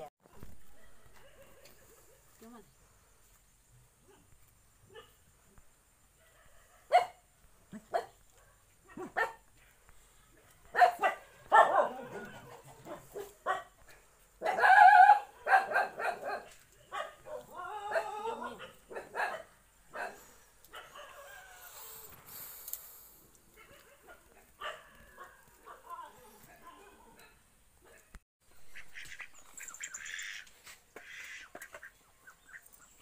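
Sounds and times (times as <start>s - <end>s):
dog barking: 0.6s - 2.2s, 4.9s - 5.2s, 6.1s - 9.5s, 10.4s - 13.8s, 14.4s - 21.4s, 23.5s - 28.2s.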